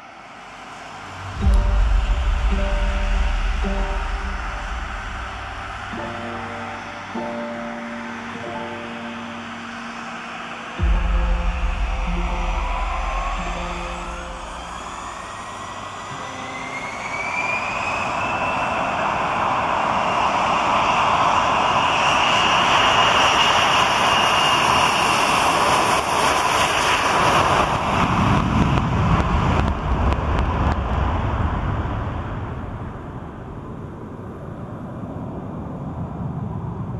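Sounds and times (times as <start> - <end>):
low rumble: 0.0 - 18.6
jet noise rush: 0.0 - 35.8
jet engine whine: 0.0 - 36.9.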